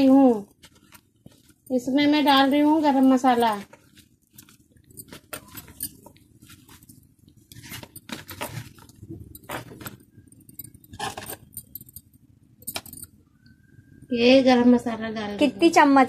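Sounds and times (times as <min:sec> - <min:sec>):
potatoes squishing by hand: 0:00.0 - 0:10.2
glass bangles clinking: 0:00.0 - 0:13.7.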